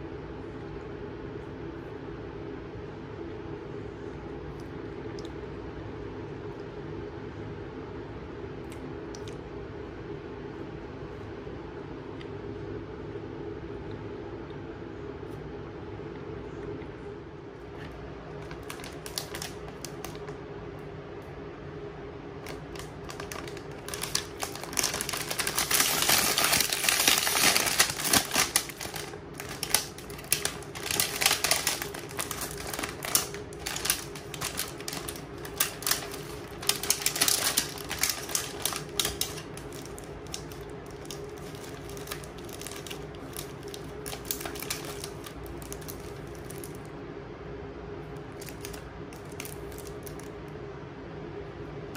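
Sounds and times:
steady low hum: 0:00.0 - 0:51.9
plastic snack bag crinkling: 0:18.3 - 0:20.4, 0:22.4 - 0:46.9, 0:48.2 - 0:50.3
wrapped packets rustling: 0:18.4 - 0:20.3, 0:22.4 - 0:46.9, 0:48.3 - 0:50.3.

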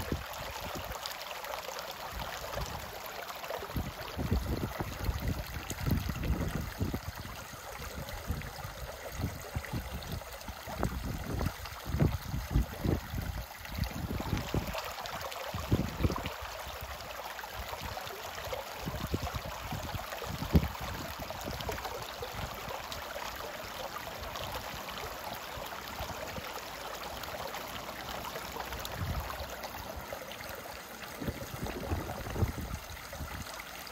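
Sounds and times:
stream flowing over stones: 0:00.0 - 0:33.9.

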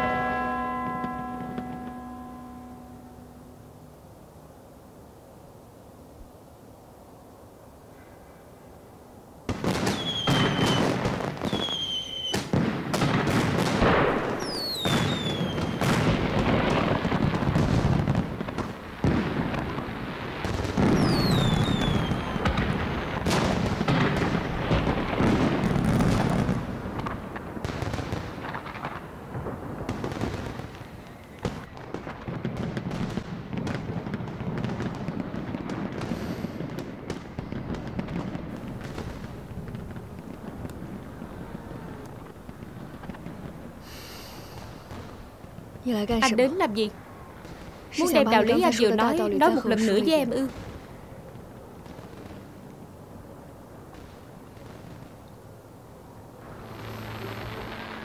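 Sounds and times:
fireworks bangs and booms: 0:00.0 - 0:02.3, 0:09.4 - 0:58.0
fireworks crackling: 0:00.0 - 0:04.0, 0:09.4 - 0:58.0
rockets whistling down: 0:09.5 - 0:45.7, 0:56.4 - 0:58.0.

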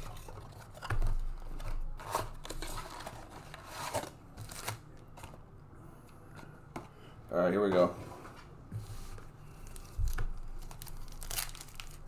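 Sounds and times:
foil packs rustling: 0:09.7 - 0:12.0.

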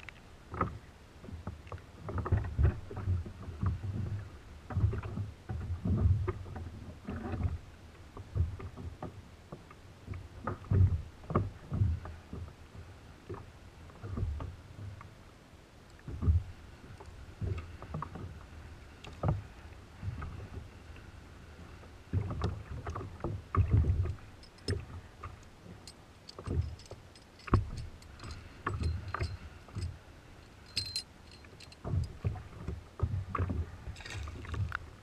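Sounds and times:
light clinking ticks: 0:24.0 - 0:32.2
water slapping: 0:33.1 - 0:35.0
anchor splashing into water: 0:33.9 - 0:34.8.

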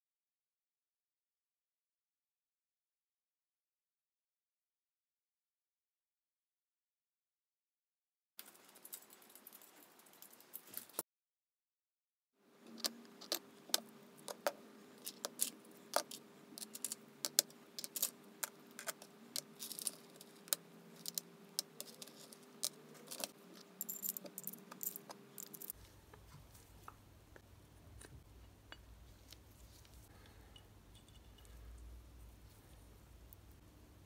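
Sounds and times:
faint steady hum: 0:12.4 - 0:34.0
metal parts clinking: 0:15.0 - 0:18.2, 0:18.8 - 0:25.8.

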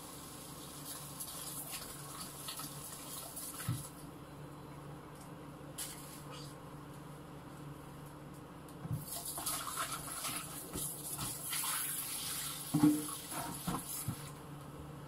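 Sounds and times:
tap running into metal sink: 0:12.7 - 0:14.3.

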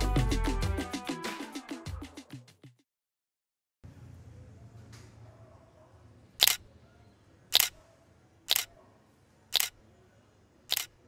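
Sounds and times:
phone camera shutter clicks: 0:06.4 - 0:06.6, 0:07.5 - 0:07.8, 0:08.5 - 0:08.7, 0:09.5 - 0:09.8, 0:10.7 - 0:11.0.

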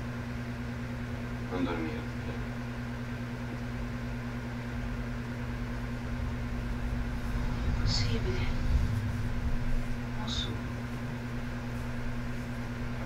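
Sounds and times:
low electrical hum with hiss: 0:00.0 - 0:13.0
low rumble: 0:04.8 - 0:13.0.

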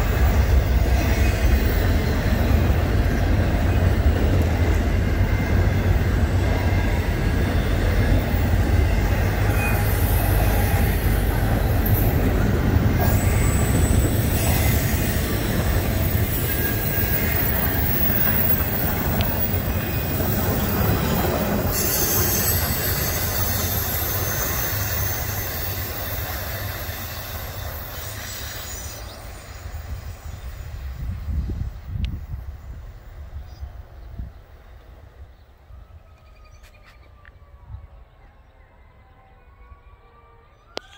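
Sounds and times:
freight train rumbling: 0:00.0 - 0:40.9
wheel squeal: 0:13.0 - 0:29.7.

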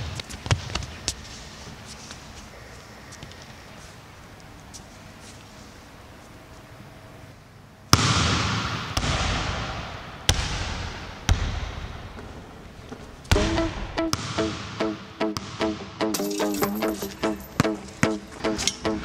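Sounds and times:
basketball bouncing on gym floor: 0:08.0 - 0:12.3, 0:13.3 - 0:14.7
music: 0:13.3 - 0:19.0.

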